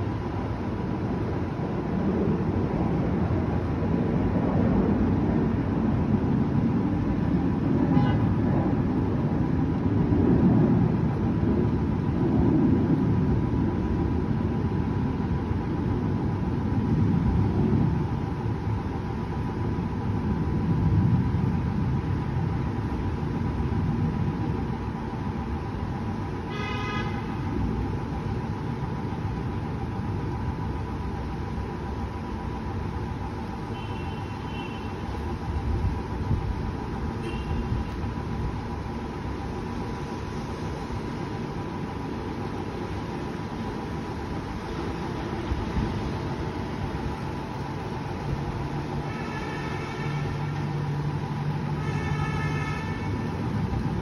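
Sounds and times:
low rumbling city din: 0.0s - 54.0s
car horn honk: 7.9s - 8.3s, 26.5s - 27.3s, 37.2s - 37.8s, 51.8s - 53.3s.

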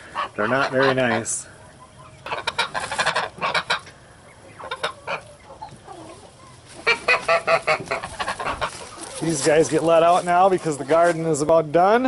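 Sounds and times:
geese honking: 0.0s - 11.4s.

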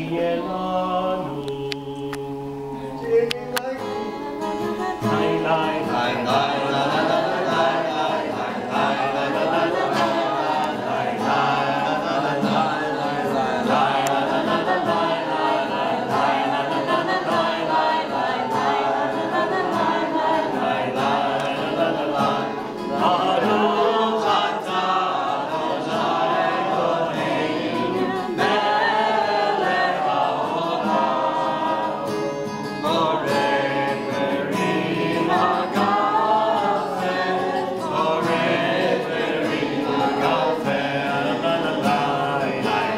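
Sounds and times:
group singing together: 0.0s - 42.9s.

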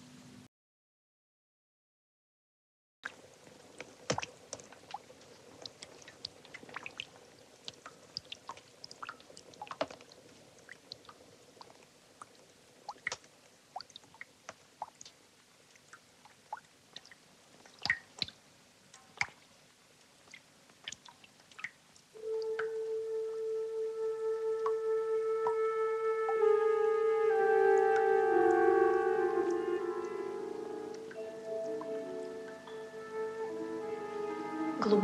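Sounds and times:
water drops dripping: 3.0s - 22.8s, 24.6s - 24.8s, 25.4s - 25.6s, 29.3s - 33.0s
wood fire crackling: 3.2s - 22.1s.

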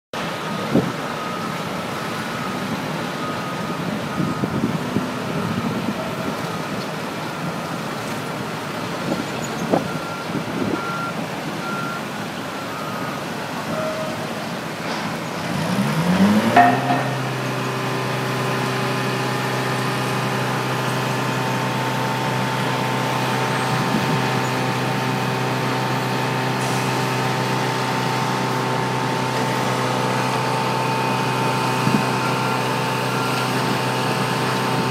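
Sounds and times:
diesel machinery engine running: 0.2s - 34.9s
faint high beeps: 12.6s - 14.3s
engine revving: 15.4s - 20.2s
knocks: 16.6s - 17.4s.

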